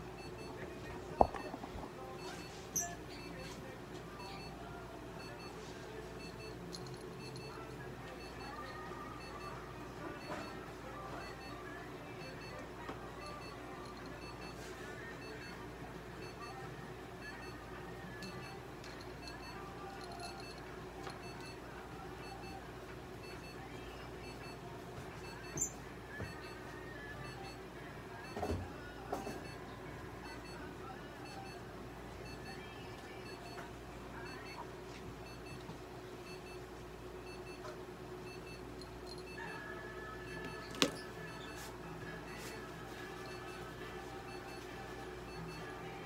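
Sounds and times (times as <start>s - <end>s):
low hum of room equipment: 0.0s - 46.0s
faint high beeps: 0.2s - 3.5s, 5.2s - 12.6s, 13.2s - 15.6s, 16.2s - 16.6s, 18.2s - 21.6s, 22.2s - 22.6s, 25.2s - 27.6s, 34.3s - 34.6s, 38.3s - 46.0s.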